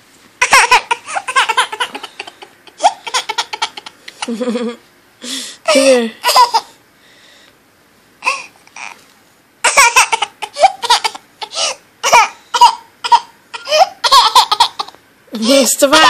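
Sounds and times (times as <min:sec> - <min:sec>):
baby laughing and giggling: 0:00.4 - 0:04.8, 0:05.7 - 0:06.7, 0:09.6 - 0:15.0.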